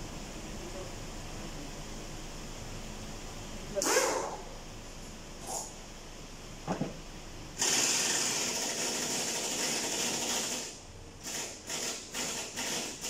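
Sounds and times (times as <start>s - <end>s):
power tool rattling and hissing: 7.6s - 13.0s.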